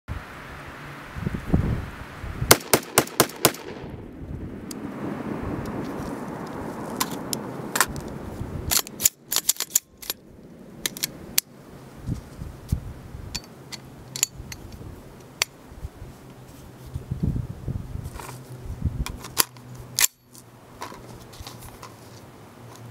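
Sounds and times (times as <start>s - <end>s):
metallic clicks of pistol handling: 8.7s - 10.2s, 10.8s - 11.5s, 13.3s - 15.6s.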